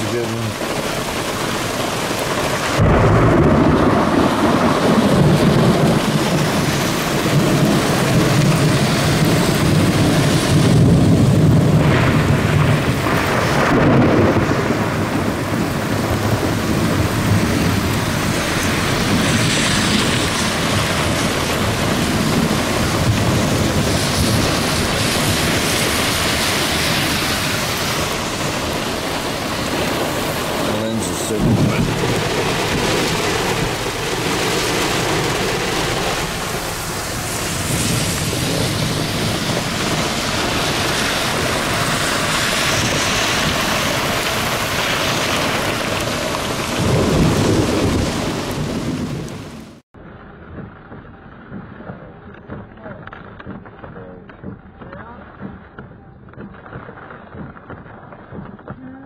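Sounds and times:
heavy rain pelting a vehicle: 0:00.0 - 0:55.2
thunder rumbling: 0:00.0 - 0:59.0.

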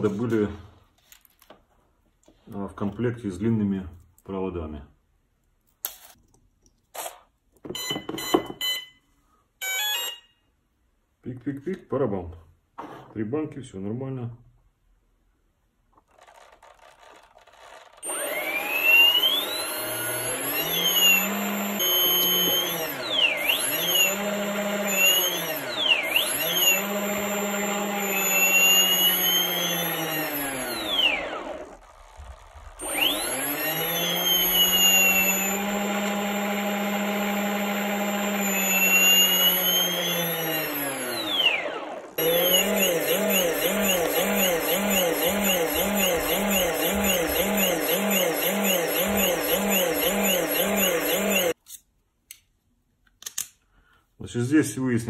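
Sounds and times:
electric motor whine: 0:17.1 - 0:51.6
motor warbling: 0:41.0 - 0:51.6.

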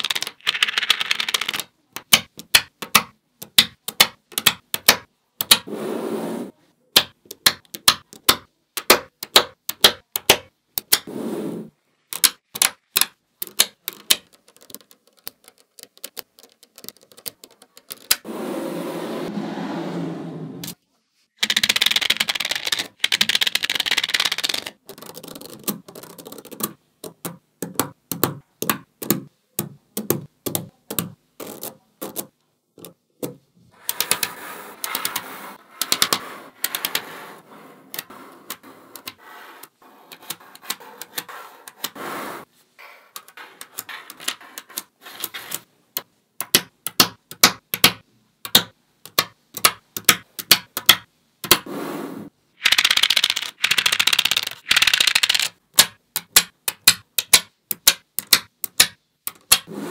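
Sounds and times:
magnetic balls clicking together: 0:00.0 - 0:05.7, 0:12.0 - 0:18.2, 0:21.4 - 0:33.0, 0:52.6 - 0:59.7.

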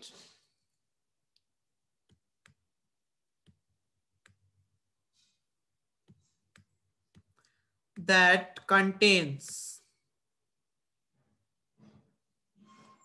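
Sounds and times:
stylus tapping tablet screen: 0:01.3 - 0:08.0.

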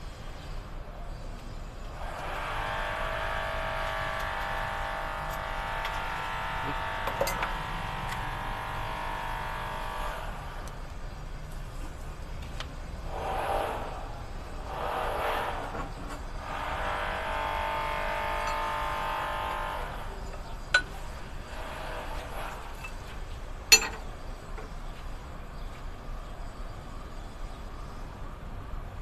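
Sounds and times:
tools clinking on metal: 0:20.3 - 0:21.0, 0:23.7 - 0:24.1.

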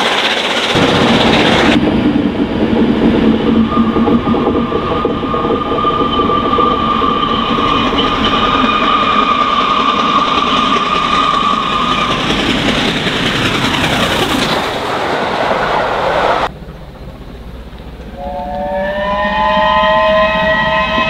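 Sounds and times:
passing train rumble: 0:00.0 - 0:21.0
steam locomotive whistle: 0:18.1 - 0:21.0.

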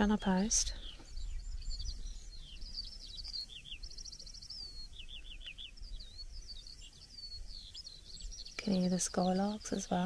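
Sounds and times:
skylark singing: 0:00.0 - 0:10.0.

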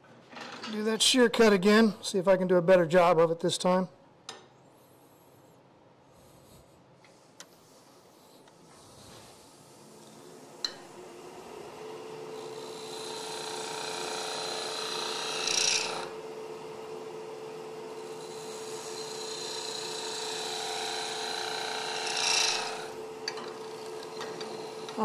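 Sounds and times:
lathe hum: 0:09.7 - 0:25.0
chisel cutting spinning wood: 0:11.0 - 0:25.0.

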